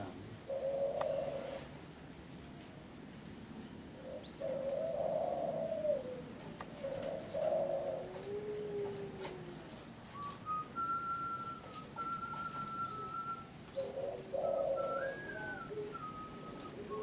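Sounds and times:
dove cooing: 0:00.0 - 0:01.7, 0:04.0 - 0:17.0
thin high whistle: 0:10.2 - 0:13.4, 0:14.9 - 0:17.0.

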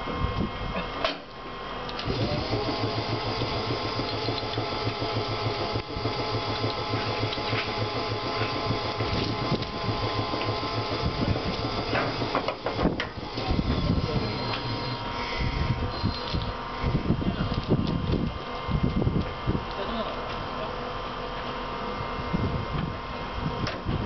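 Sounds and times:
air compressor chugging: 0:02.0 - 0:20.1.

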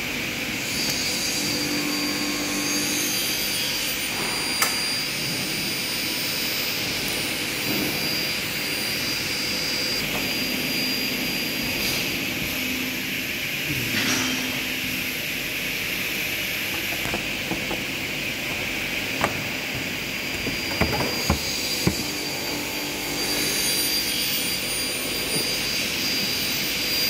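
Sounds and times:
machinery humming and hissing: 0:00.0 - 0:27.0.

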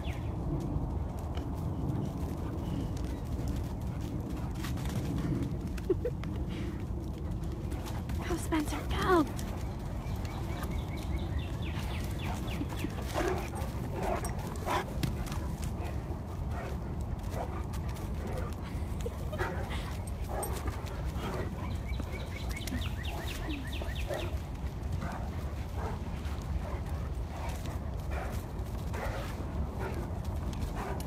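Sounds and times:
low rumble: 0:00.0 - 0:31.0
dogs vocal noises: 0:03.8 - 0:31.0
dogs barking: 0:09.4 - 0:31.0.

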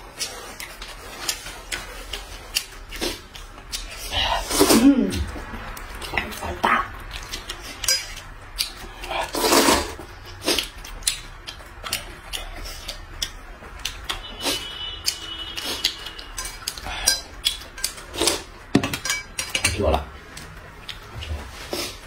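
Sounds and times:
chopsticks clicking on bowls: 0:05.1 - 0:09.7, 0:10.3 - 0:14.2, 0:15.0 - 0:21.0.

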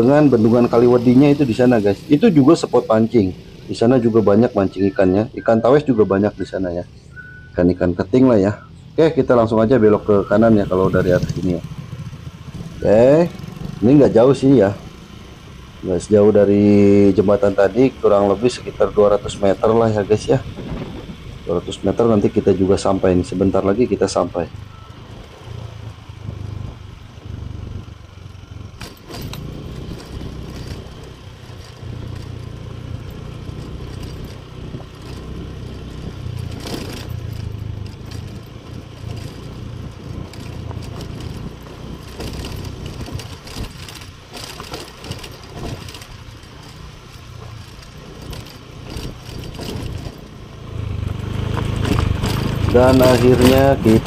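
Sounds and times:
small motorcycle engine running: 0:00.0 - 0:54.0
rattles and knocks from bumps: 0:18.2 - 0:22.3, 0:28.6 - 0:54.0.

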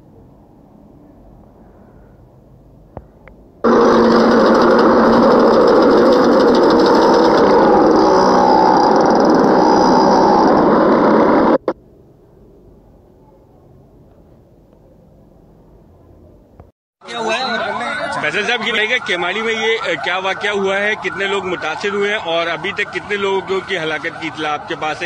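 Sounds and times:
truck engine and road noise: 0:02.3 - 0:13.1.

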